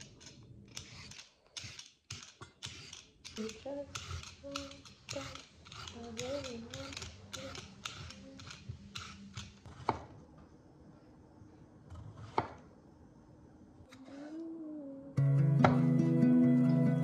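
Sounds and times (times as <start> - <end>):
peeler scraping carrot: 0.7 - 1.9, 2.6 - 10.0.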